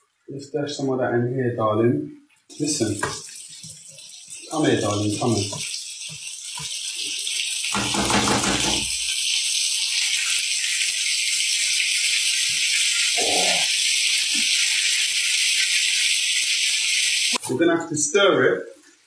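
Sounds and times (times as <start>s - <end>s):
oil sizzling in frying pan: 2.5s - 17.5s.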